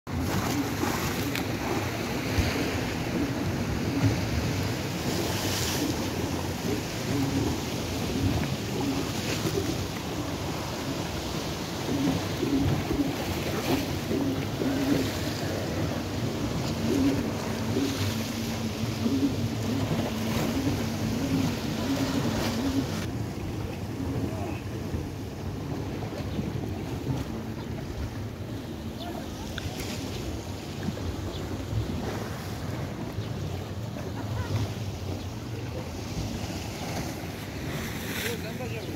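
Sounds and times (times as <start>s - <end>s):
waves splashing on rocks: 0.1s - 26.6s
wind on microphone: 0.1s - 38.6s.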